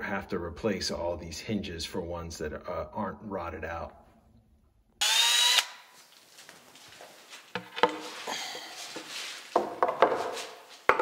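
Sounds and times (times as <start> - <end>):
cabinet doors knocking and clicking: 9.6 - 10.3.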